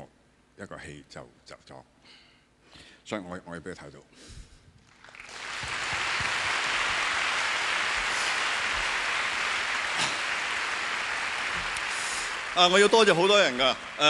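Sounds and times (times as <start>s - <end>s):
audience applause: 4.9s - 14.0s.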